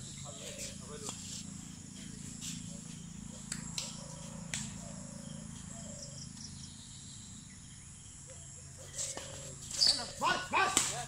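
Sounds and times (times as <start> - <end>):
high-pitched insect chorus: 0.0 - 11.0
badminton racket striking shuttlecock: 10.6 - 11.0.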